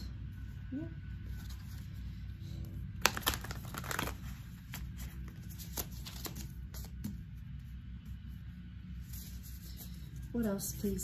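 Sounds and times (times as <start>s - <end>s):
cards being shuffled: 2.9s - 7.5s.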